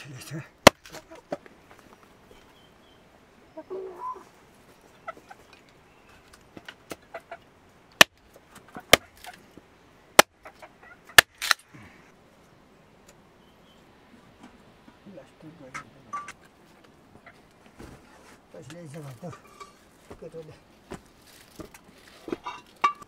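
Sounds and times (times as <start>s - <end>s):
knife splitting firewood: 0.6s - 1.1s, 8.0s - 9.4s
chicken clucking: 3.5s - 5.6s, 7.0s - 7.5s, 10.4s - 11.2s.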